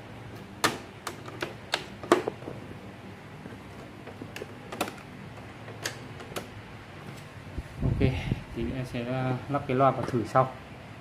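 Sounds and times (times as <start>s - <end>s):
cassette player buttons clicking: 0.6s - 2.4s.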